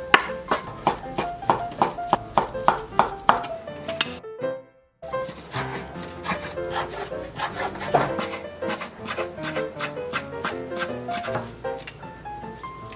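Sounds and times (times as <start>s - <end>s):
background music: 0.0s - 12.9s
knife tapping and scraping on wood: 0.1s - 4.2s, 7.8s - 12.0s.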